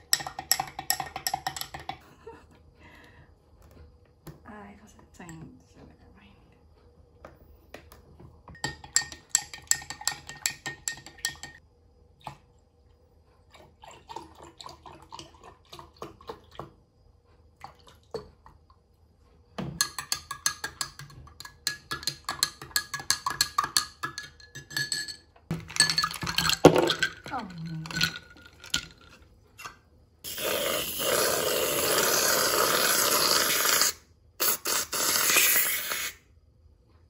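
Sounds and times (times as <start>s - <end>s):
metal spoon clinking in glass: 8.5s - 11.6s, 19.8s - 28.9s.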